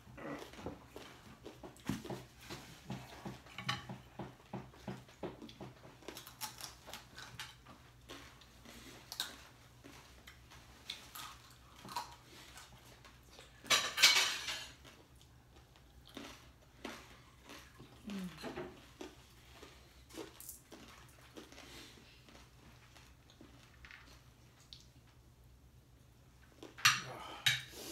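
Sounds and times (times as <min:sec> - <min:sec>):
forks and dishes clinking: 0:13.6 - 0:14.8.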